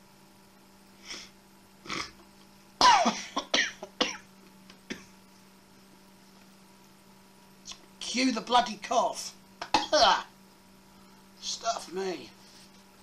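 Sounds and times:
man coughing: 2.8s - 4.2s, 9.6s - 10.3s.

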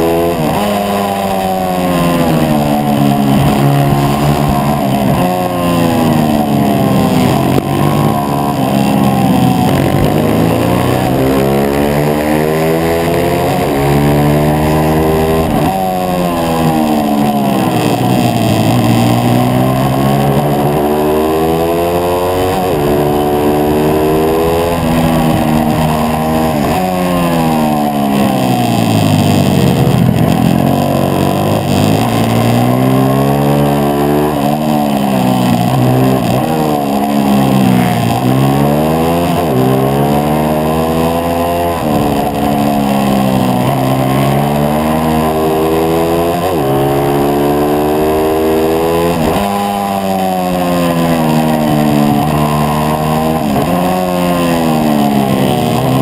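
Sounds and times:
motorbike engine revving: 0.0s - 56.0s
wind rushing over microphone: 0.4s - 32.6s.

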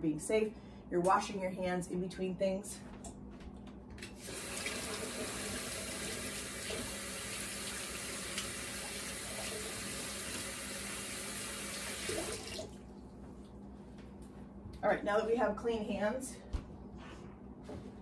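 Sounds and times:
tap water running: 4.1s - 13.0s.

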